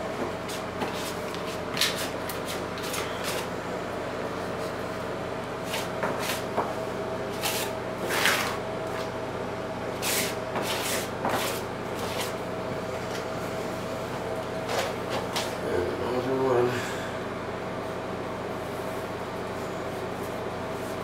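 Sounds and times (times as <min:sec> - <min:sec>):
steady hum: 0:00.0 - 0:21.0
hand scraping mesh tape: 0:00.5 - 0:03.5, 0:07.3 - 0:09.1, 0:10.0 - 0:12.4.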